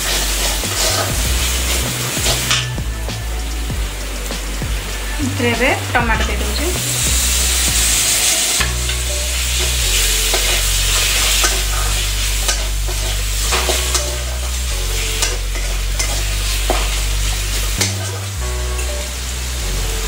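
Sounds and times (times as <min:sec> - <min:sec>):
metal spatula scraping pan: 0:00.0 - 0:02.8, 0:07.3 - 0:18.3
tomatoes sizzling in hot oil: 0:00.0 - 0:20.0.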